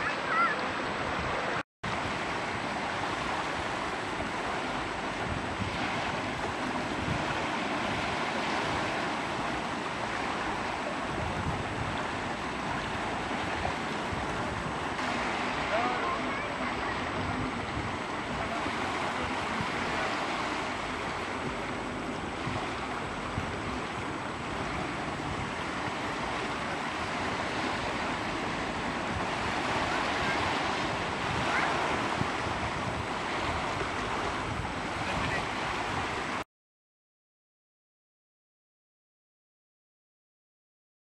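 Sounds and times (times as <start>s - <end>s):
waves washing in shallows: 0.0s - 36.4s
wind rumbling on microphone: 0.0s - 36.4s.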